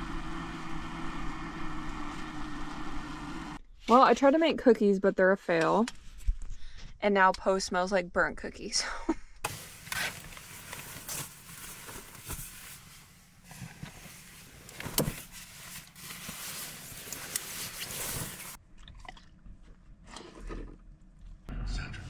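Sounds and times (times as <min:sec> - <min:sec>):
fabric rustling: 0:09.5 - 0:18.6.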